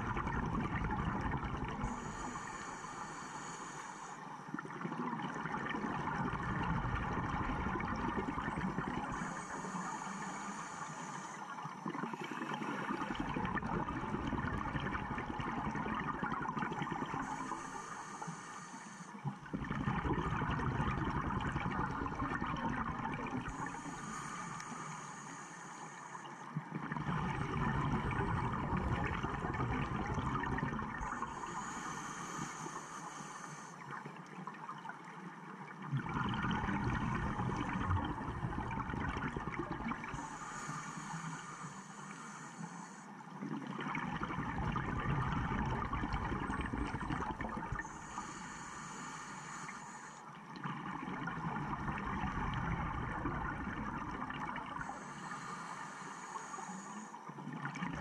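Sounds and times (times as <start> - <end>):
exhaled bubbles rumbling underwater: 0.0 - 18.2, 19.2 - 24.9, 26.3 - 41.7, 43.2 - 55.5, 57.2 - 58.0
regulator inhalation hiss: 1.8 - 4.4, 8.7 - 13.1, 17.1 - 19.2, 23.4 - 26.6, 31.0 - 34.0, 40.1 - 43.4, 47.8 - 50.4, 54.8 - 57.3.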